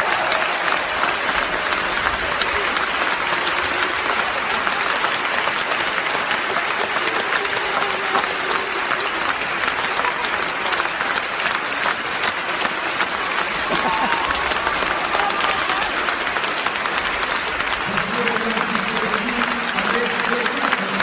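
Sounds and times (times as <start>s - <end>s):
large audience applauding: 0.0s - 21.0s.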